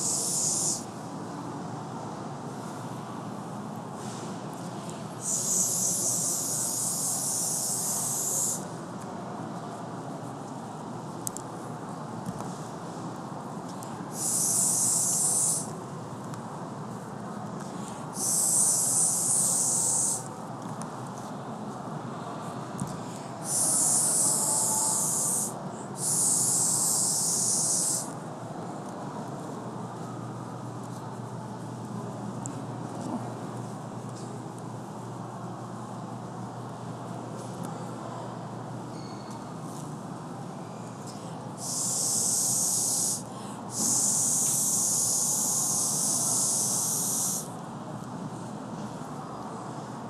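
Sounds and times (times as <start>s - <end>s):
blow pen spraying hiss: 0.0s - 0.8s, 5.2s - 8.6s, 14.1s - 15.7s, 18.2s - 20.2s, 23.4s - 28.1s, 41.6s - 47.5s.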